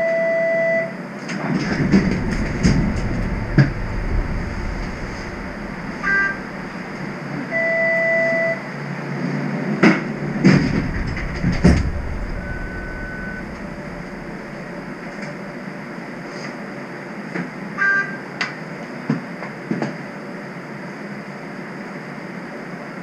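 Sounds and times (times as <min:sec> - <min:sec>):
streetcar hum and hiss: 0:01.0 - 0:23.0
steady beep: 0:02.3 - 0:08.6, 0:10.7 - 0:15.1
knocks: 0:09.8 - 0:15.3.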